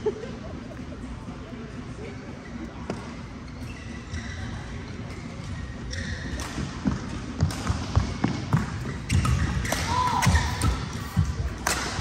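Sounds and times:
shoe squeak: 3.4s - 6.4s, 8.8s - 9.7s.

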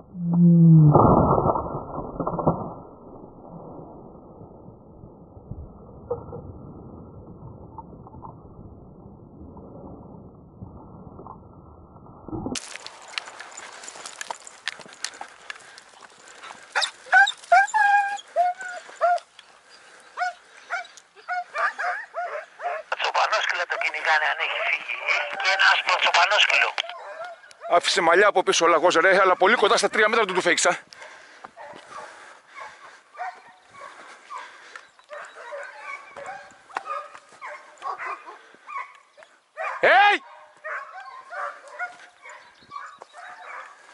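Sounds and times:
footsteps through dry scrub: 12.6s - 17.6s
hound yelping: 16.4s - 19.3s, 20.2s - 22.9s, 26.8s - 27.8s, 35.1s - 43.7s.

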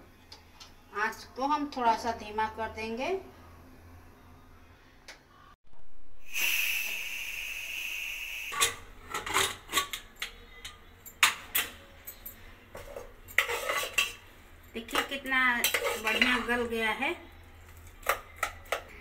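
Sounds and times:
steam hissing: 6.2s - 8.7s
metal lid clanks and scrapes: 8.6s - 14.2s, 14.9s - 16.5s
spoon stirring in pot: 12.4s - 16.6s.

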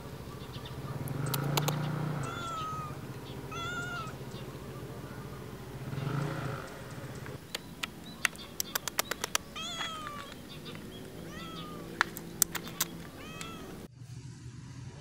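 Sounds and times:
sharp clicks: 1.0s - 1.9s, 6.7s - 11.2s, 11.8s - 13.8s
cat meowing: 2.2s - 4.8s, 9.5s - 12.0s, 12.6s - 13.9s.

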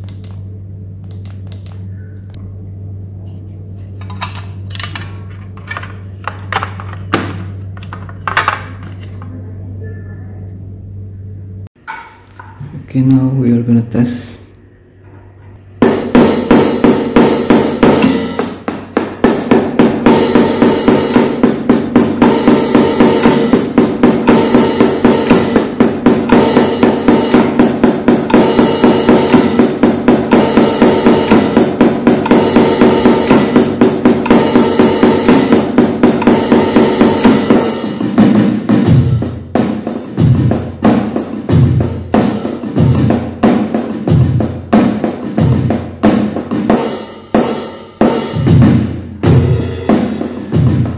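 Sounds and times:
deep kick drum hits: 15.8s - 39.3s
electronic hi-hat hits: 15.8s - 50.9s.

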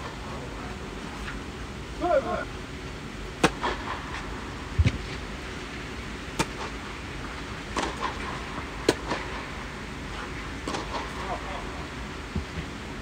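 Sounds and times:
steady low hum: 0.0s - 13.0s
tennis rackets striking ball: 3.4s - 4.0s, 6.4s - 6.8s, 7.7s - 9.4s, 10.6s - 11.2s.

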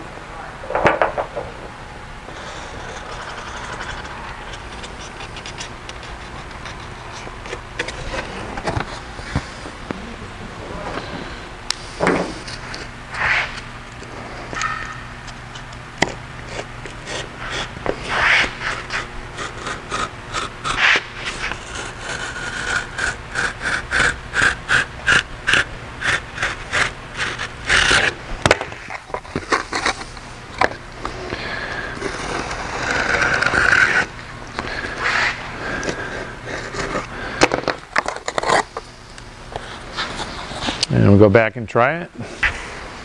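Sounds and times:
knife scraping cardboard edge: 2.3s - 9.6s, 15.6s - 38.8s.

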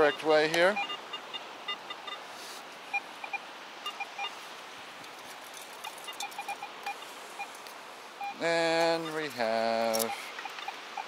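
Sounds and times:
metal detector beeps: 0.0s - 2.2s, 2.9s - 4.4s, 6.0s - 7.5s, 8.2s - 11.0s
steady hiss: 1.4s - 11.0s.

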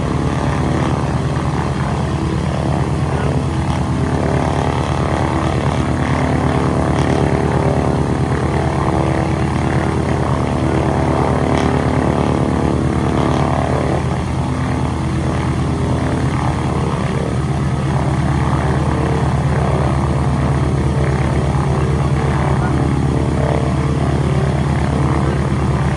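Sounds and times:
radial aircraft engine running: 0.0s - 25.9s.

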